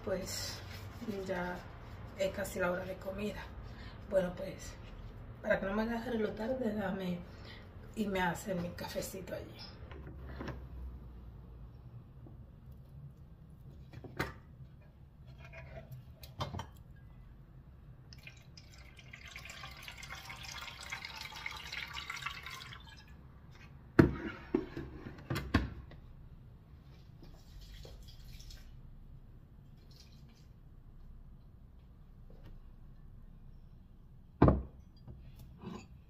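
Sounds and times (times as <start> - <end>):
water pouring into tank: 18.1 - 23.2, 27.4 - 28.8.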